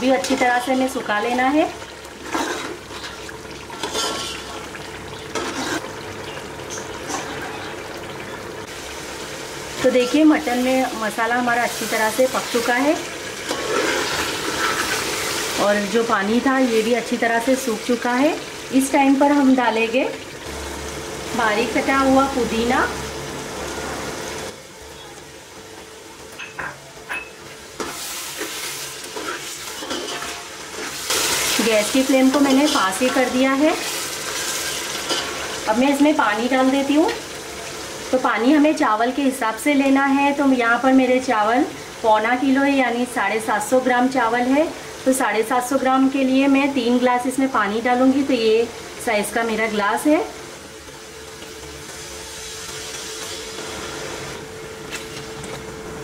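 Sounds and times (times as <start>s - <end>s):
gravy bubbling and sizzling: 0.0s - 56.0s
spoon stirring and scraping pot: 3.8s - 4.5s, 5.3s - 5.9s.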